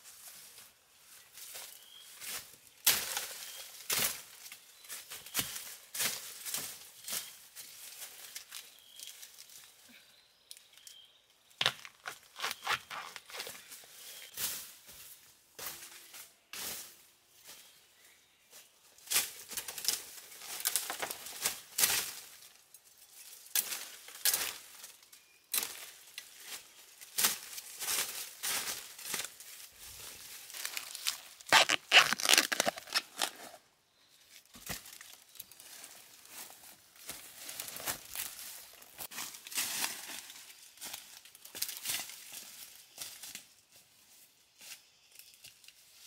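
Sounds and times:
dry leaves crackling and rustling: 18.9s - 46.0s.

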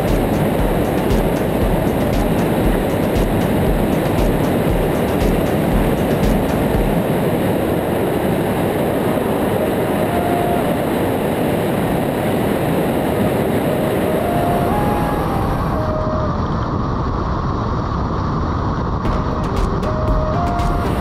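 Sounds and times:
aircraft engine and propeller: 0.0s - 10.0s
wind rushing over camera: 0.0s - 21.0s.

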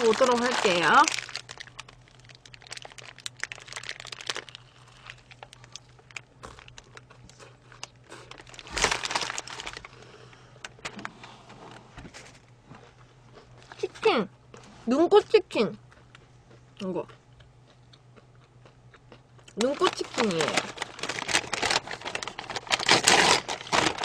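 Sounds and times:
paper wrapper crinkling: 0.0s - 10.0s, 19.6s - 24.0s.

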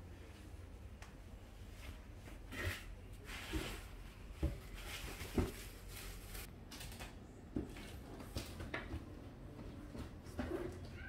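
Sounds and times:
faint room noise: 0.0s - 11.0s.

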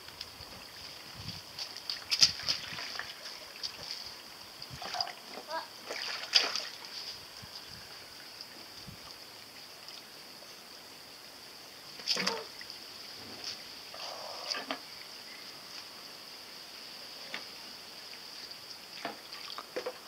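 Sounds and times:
water splashing: 0.6s - 7.3s, 11.9s - 12.8s, 18.9s - 20.0s.

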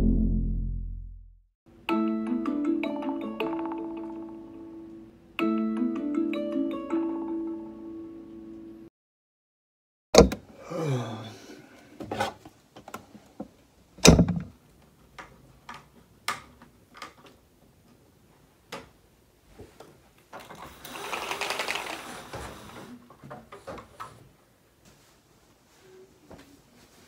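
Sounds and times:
window blinds rattling: 20.4s - 22.9s.

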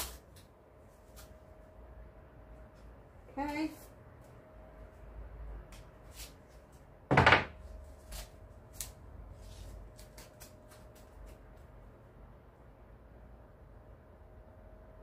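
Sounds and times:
loud thump on table: 7.1s - 7.6s.

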